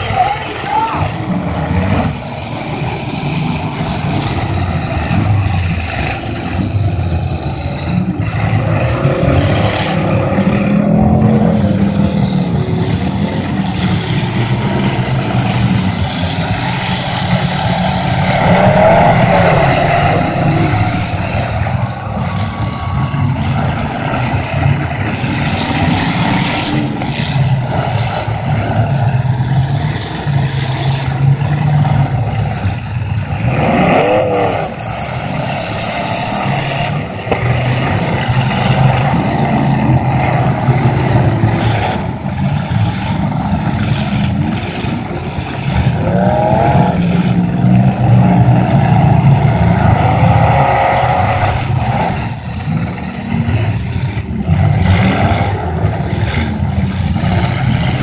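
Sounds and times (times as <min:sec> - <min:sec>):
car engines revving hard: 0:00.0 - 0:58.0.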